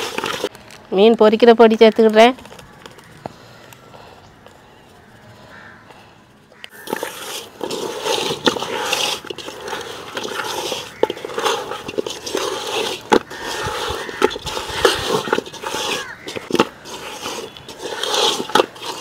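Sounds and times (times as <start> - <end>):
hands squishing fish in metal pot: 6.7 - 19.0.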